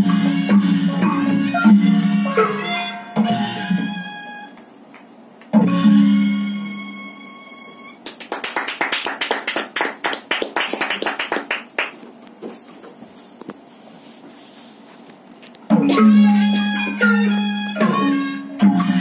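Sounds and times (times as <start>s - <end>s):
small audience applauding: 8.0s - 12.2s.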